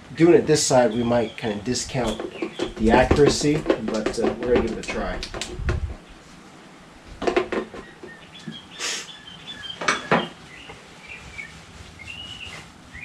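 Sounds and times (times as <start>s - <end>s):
rustling hiss: 0.0s - 13.0s
small birds chirping: 0.2s - 5.2s, 7.6s - 13.0s.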